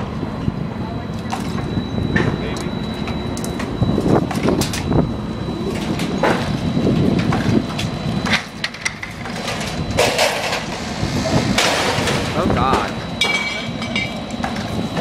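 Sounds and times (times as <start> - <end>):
excavator engine rumble: 0.3 - 15.0
metal clanks and scrapes: 8.7 - 14.6.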